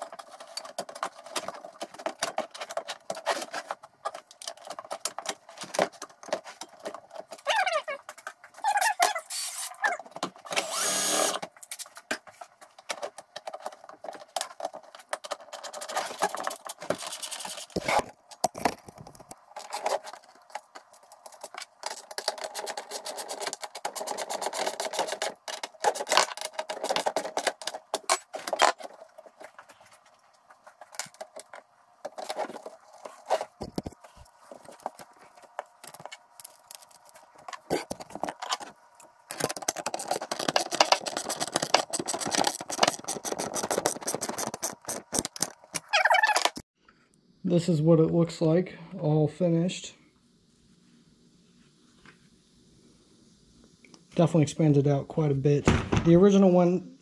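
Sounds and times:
power tool burst: 0:10.5 - 0:11.4.

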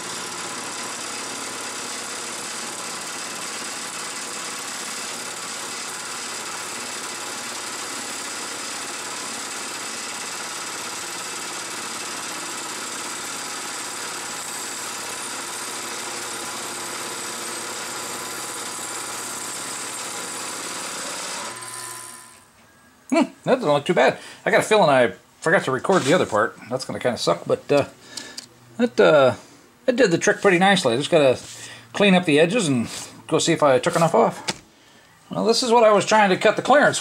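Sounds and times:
milling machine cutting aluminum: 0:00.0 - 0:22.4.

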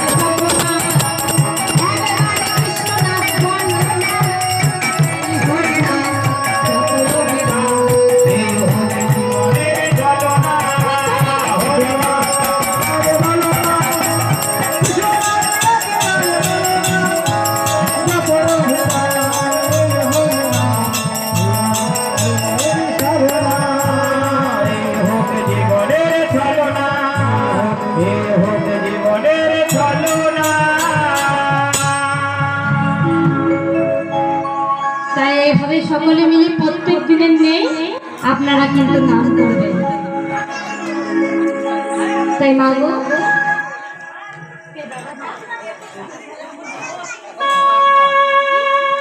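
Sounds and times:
barrel drum beaten in rhythm: 0:00.0 - 0:32.5
person singing: 0:00.0 - 0:35.7.

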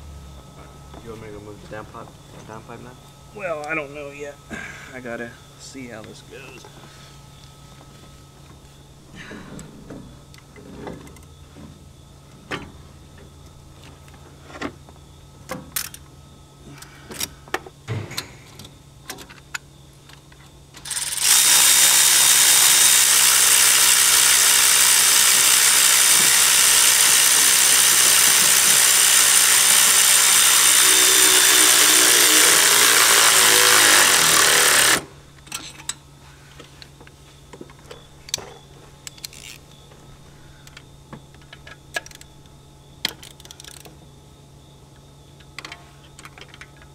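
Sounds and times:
power tool running with hiss: 0:20.8 - 0:35.1
tools and parts clicking: 0:39.0 - 0:39.6, 0:40.6 - 0:42.4, 0:43.0 - 0:44.0, 0:45.4 - 0:46.9.

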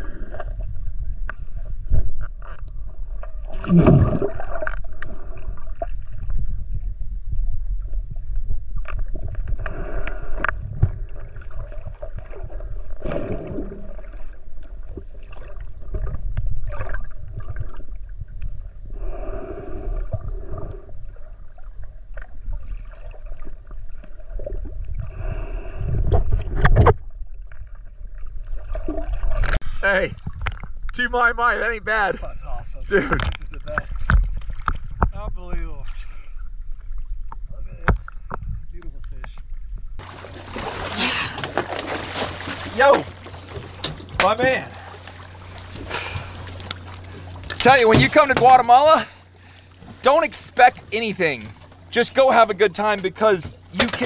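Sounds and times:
underwater gurgles: 0:00.0 - 0:29.6
underwater rumble of moving water: 0:00.0 - 0:54.0.

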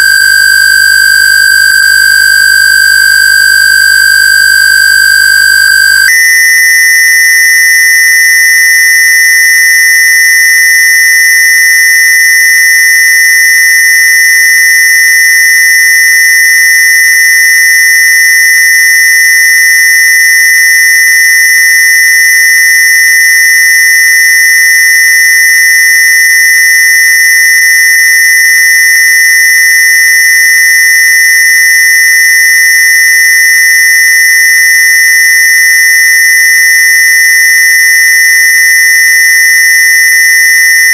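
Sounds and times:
shrill square-wave tone: 0:00.0 - 0:10.3, 0:25.9 - 0:29.6.

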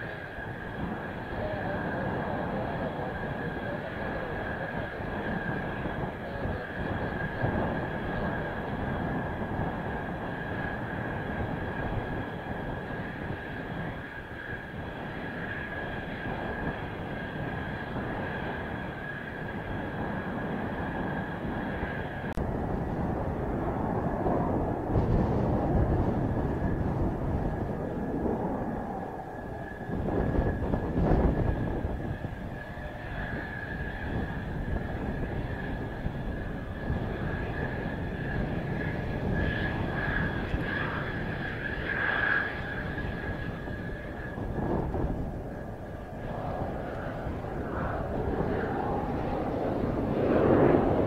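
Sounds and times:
jet engine high whine: 0:00.0 - 0:51.0
wind rumbling on microphone: 0:00.0 - 0:51.0.

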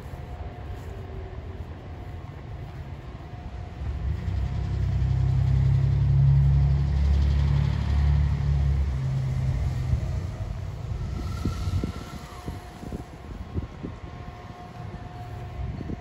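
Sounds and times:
large vehicle engine passing: 0:03.6 - 0:16.0.

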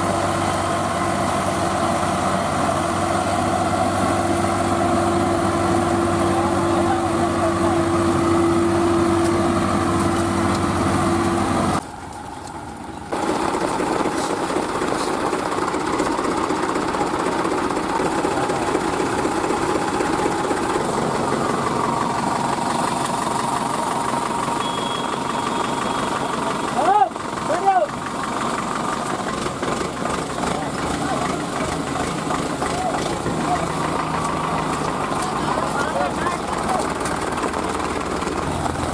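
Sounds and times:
tractor engine revving high: 0:00.0 - 0:11.8, 0:13.1 - 0:38.9.

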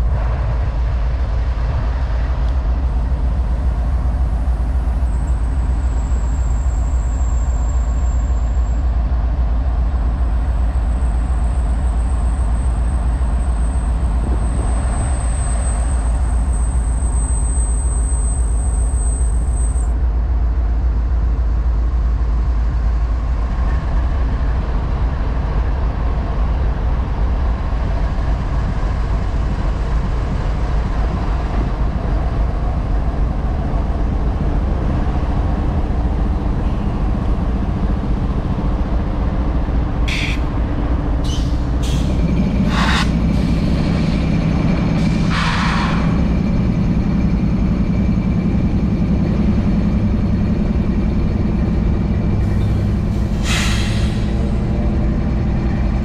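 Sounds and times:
diesel locomotive engine rumble: 0:00.0 - 0:56.0.

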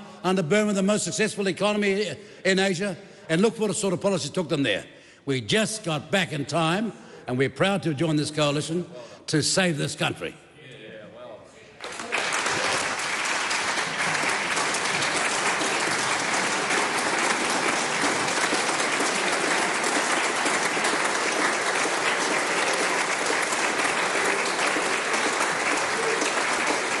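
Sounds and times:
crowd applauding: 0:11.8 - 0:27.0.

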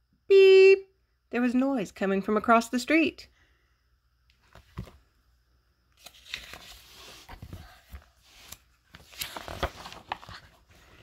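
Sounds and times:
book page rustling and turning: 0:04.3 - 0:05.0, 0:06.0 - 0:11.0.

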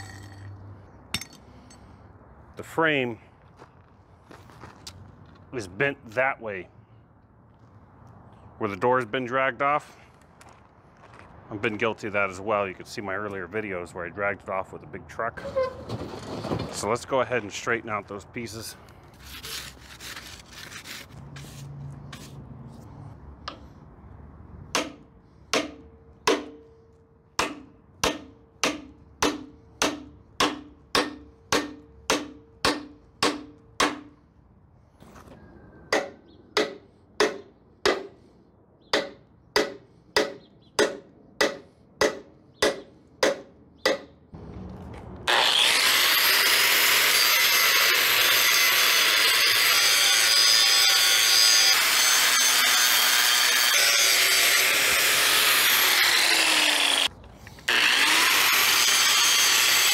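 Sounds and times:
hammer striking steel: 0:01.1 - 0:01.8, 0:24.7 - 0:26.7, 0:27.4 - 0:34.2, 0:35.9 - 0:38.2, 0:39.0 - 0:44.2
angle grinder cutting steel: 0:45.3 - 0:59.9.

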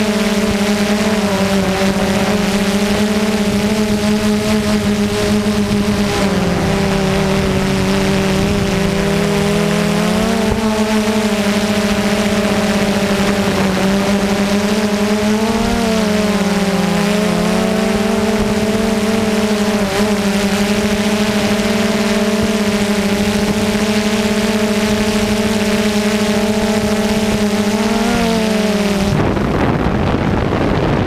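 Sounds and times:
drone motors whining: 0:00.0 - 0:31.0.

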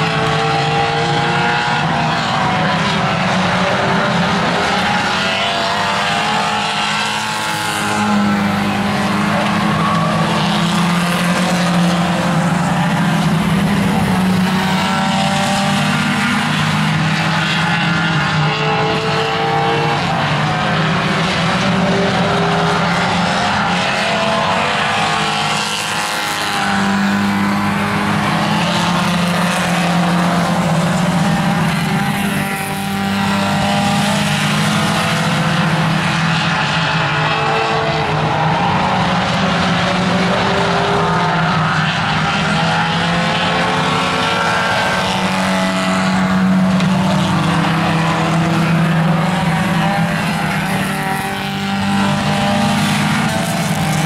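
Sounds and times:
race car engines at high revs: 0:00.0 - 0:54.0.

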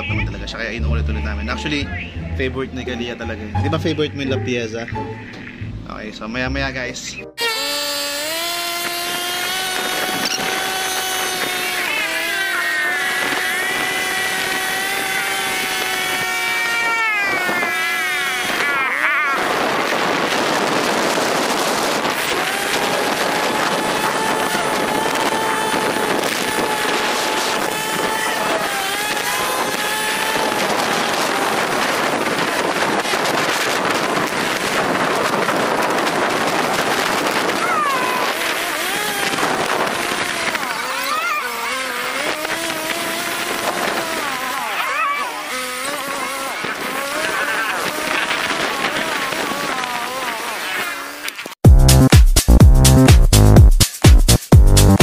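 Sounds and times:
scooter engine whine: 0:07.3 - 0:51.7
wind noise on microphone: 0:07.6 - 0:51.0.

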